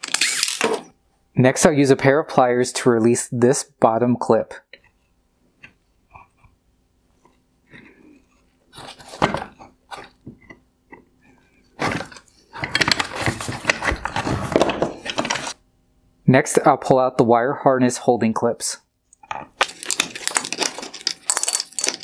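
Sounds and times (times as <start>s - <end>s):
clattering and scraping on wooden bench: 11.8s - 15.6s.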